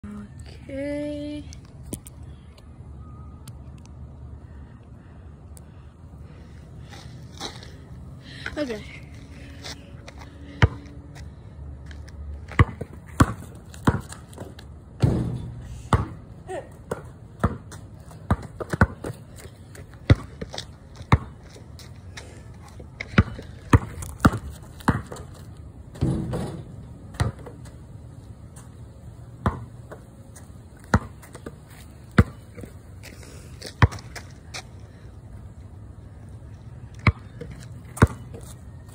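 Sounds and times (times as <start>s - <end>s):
basketball bouncing on concrete: 10.6s - 10.9s, 12.4s - 21.6s, 23.0s - 27.8s, 29.4s - 30.1s, 30.8s - 32.7s, 33.8s - 34.2s, 37.0s - 38.5s.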